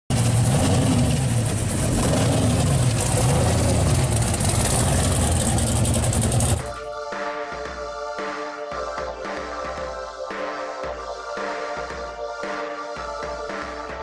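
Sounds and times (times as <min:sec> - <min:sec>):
car engine rumbling past: 0:00.1 - 0:06.8.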